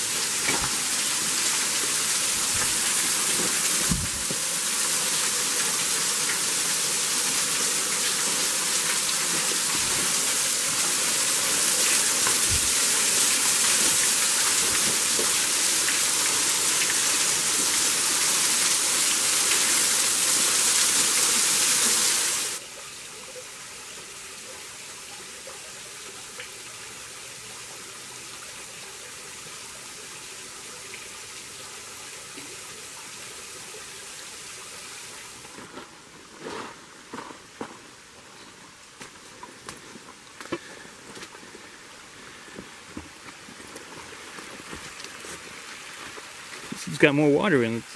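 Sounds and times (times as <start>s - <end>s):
waterfall splashing onto rocks: 0.0s - 22.6s.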